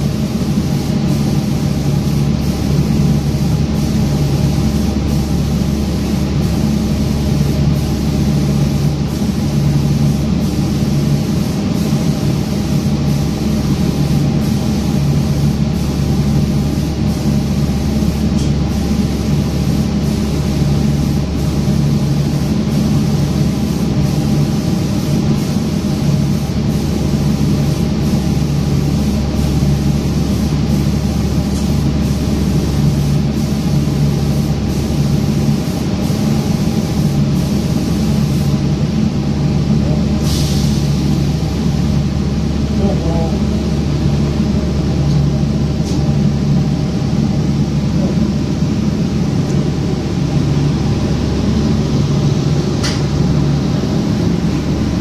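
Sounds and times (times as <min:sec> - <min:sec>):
air hissing: 0:00.0 - 0:42.7
machine hum: 0:00.0 - 0:55.0.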